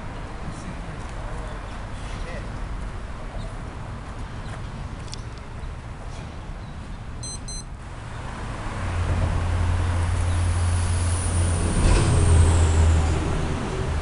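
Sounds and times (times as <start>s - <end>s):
highway traffic rumble: 0.0s - 14.0s
short electronic beeps: 7.2s - 7.7s
passing vehicle whine: 7.7s - 14.0s.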